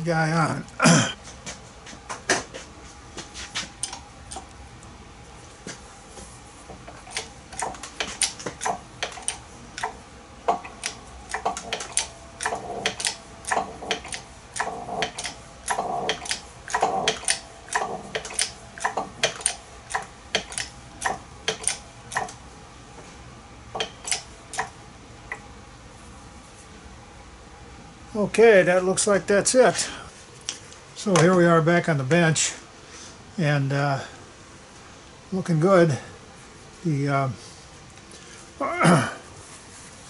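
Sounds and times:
sharp metallic clicks: 0:07.0 - 0:22.4, 0:23.8 - 0:25.4.

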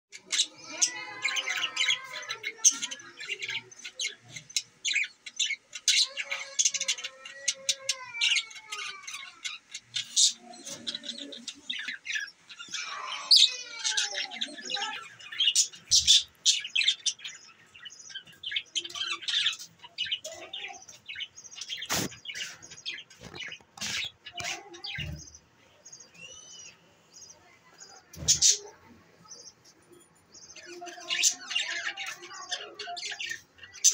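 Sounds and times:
budgerigars chirping: 0:00.2 - 0:25.4.

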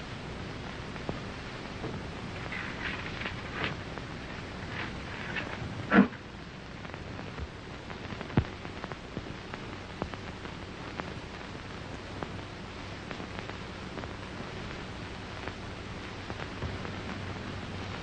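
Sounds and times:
faint low hum: 0:00.0 - 0:18.0
film soundtrack surface hiss: 0:00.0 - 0:18.0.

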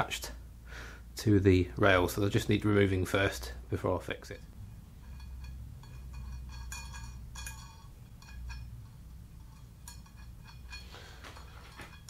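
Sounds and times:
bright metallic clinks: 0:04.6 - 0:12.0
metal nuts clicking: 0:05.0 - 0:12.0.

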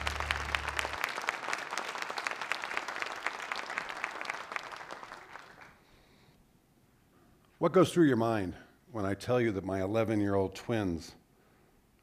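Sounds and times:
low intro music: 0:00.0 - 0:01.0
audience applauding: 0:00.0 - 0:05.8.

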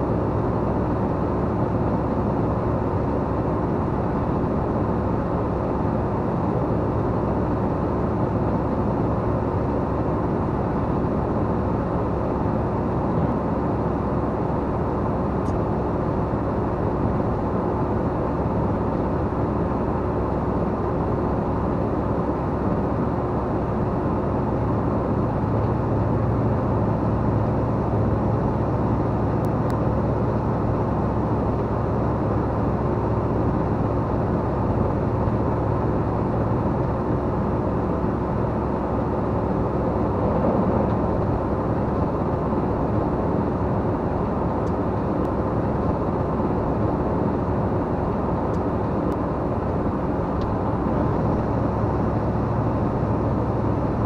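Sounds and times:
vehicle engine and road noise: 0:00.0 - 0:54.0.

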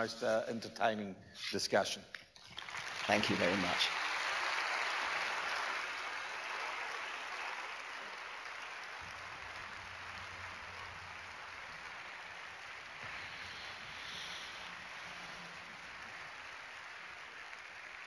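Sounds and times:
audience applauding: 0:02.4 - 0:18.0.

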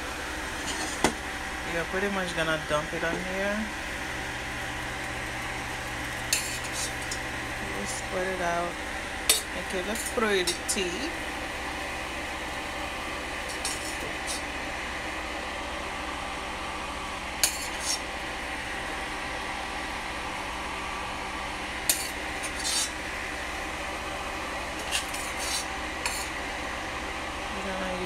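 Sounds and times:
background hum: 0:00.0 - 0:28.0
metal spoon scraping pot: 0:06.3 - 0:07.2, 0:13.5 - 0:14.4, 0:17.4 - 0:18.0, 0:21.9 - 0:23.0, 0:24.8 - 0:26.3.

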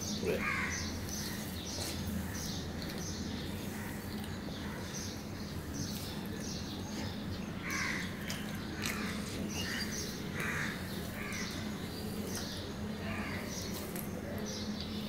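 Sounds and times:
crow cawing: 0:00.4 - 0:00.9, 0:07.6 - 0:08.1, 0:08.9 - 0:11.5.

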